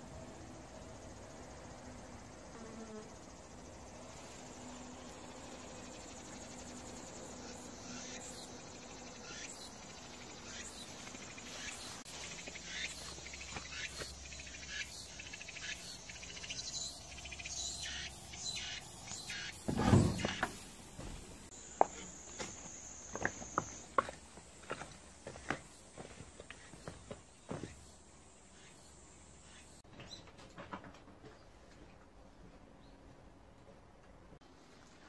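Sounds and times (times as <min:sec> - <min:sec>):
insects chirping: 0:00.0 - 0:29.8
sheet-metal gate scraping open: 0:19.6 - 0:21.5.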